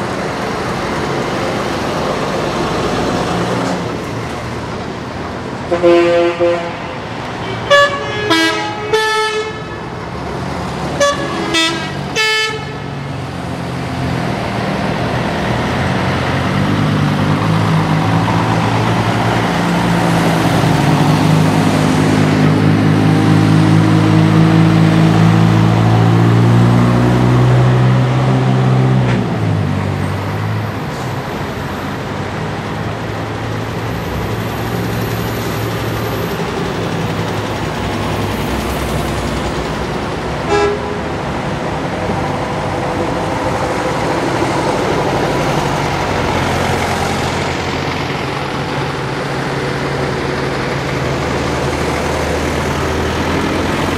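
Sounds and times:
heavy bus engine running: 0.0s - 53.9s
bus horn tooting: 5.7s - 10.0s, 10.9s - 13.0s, 40.4s - 41.3s.

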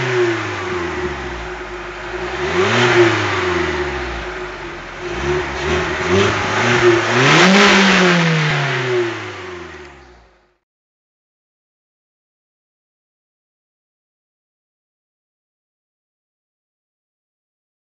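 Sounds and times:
car engine revving: 0.0s - 10.5s.

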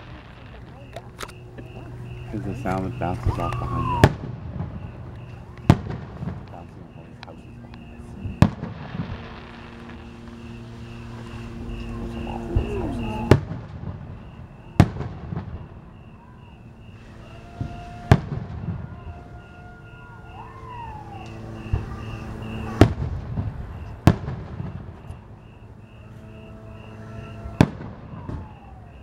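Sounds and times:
fainter firework pops: 0.0s - 14.1s, 27.6s - 28.6s
fireworks booming: 0.0s - 29.0s.

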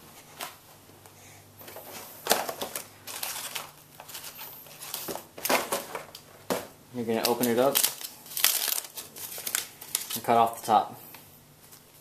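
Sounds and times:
card and paper rustling: 1.6s - 6.2s, 7.1s - 10.6s
sharp paper crackles: 7.2s - 10.5s.

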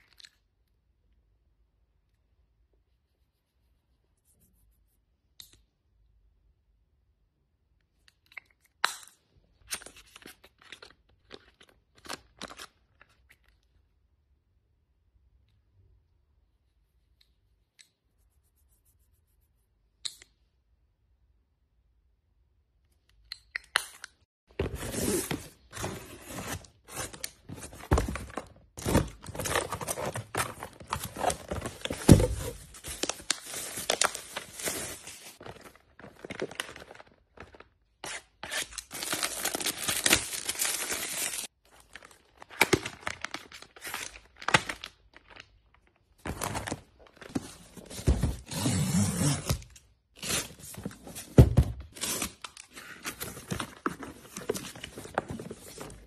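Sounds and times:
plastic packaging crinkling: 26.0s - 37.8s, 38.5s - 47.5s.

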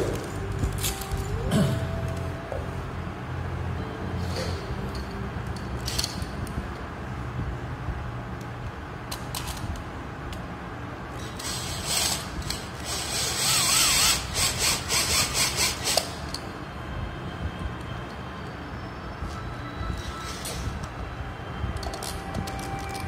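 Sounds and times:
power drill driving screws: 12.8s - 16.1s.

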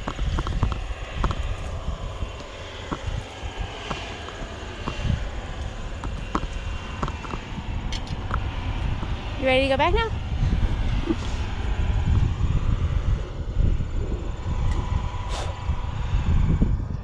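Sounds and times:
footsteps on trail: 0.0s - 9.2s
wind buffeting microphone: 0.0s - 17.0s.

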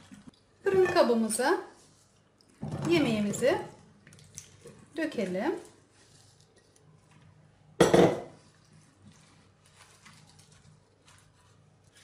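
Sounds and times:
glass bowl set on counter: 0.7s - 1.4s
hands squishing raw meat: 3.9s - 5.3s.

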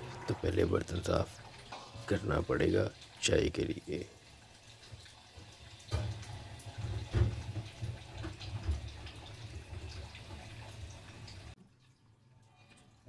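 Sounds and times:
water splashing in sink: 0.0s - 13.0s
metal clanking against metal: 1.5s - 2.6s.

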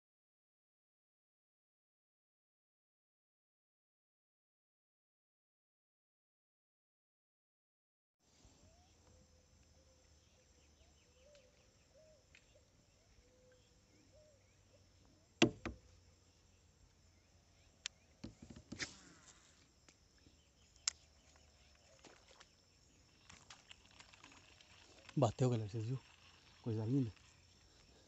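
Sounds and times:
insects chirring: 8.4s - 28.0s
sharp clicks and knocks: 15.4s - 15.8s.

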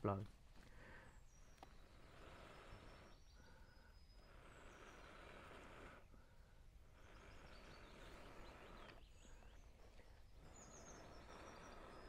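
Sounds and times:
bird chirping: 0.9s - 5.8s, 7.0s - 12.0s.

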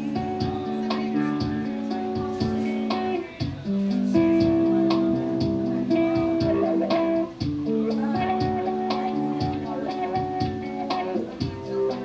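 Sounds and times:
solo guitar chords: 0.0s - 12.0s.

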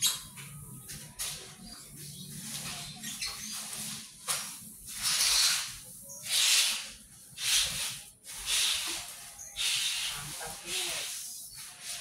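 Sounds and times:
seeds rustling in plastic basin: 7.4s - 12.0s.

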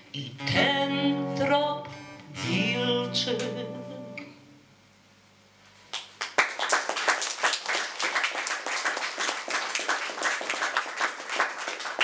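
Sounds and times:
acoustic guitar chord: 0.2s - 4.4s
audience applauding: 5.9s - 12.0s.

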